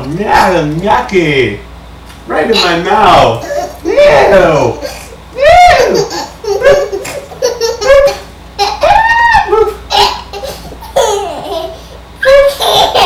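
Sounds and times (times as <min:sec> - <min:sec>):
little girl laughing: 0:03.4 - 0:03.9, 0:04.7 - 0:13.0.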